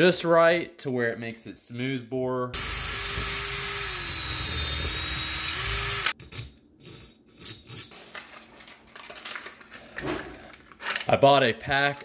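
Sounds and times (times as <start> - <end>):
cordless drill drilling metal: 2.6 - 6.2.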